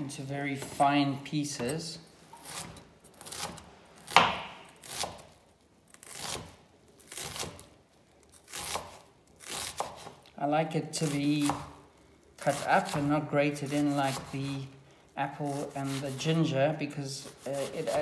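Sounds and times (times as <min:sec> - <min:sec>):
knife chopping onion on board: 0:02.4 - 0:05.2, 0:08.5 - 0:10.2, 0:11.0 - 0:11.7, 0:15.5 - 0:16.1.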